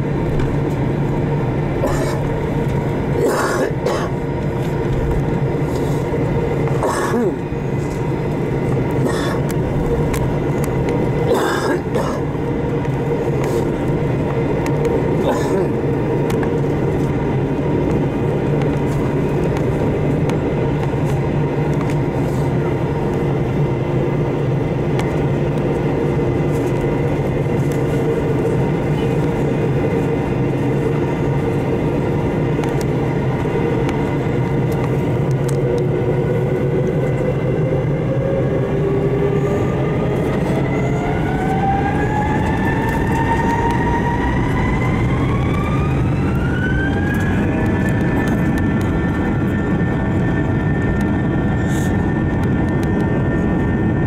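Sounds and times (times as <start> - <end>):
jet engines spooling up: 0.0 - 54.0.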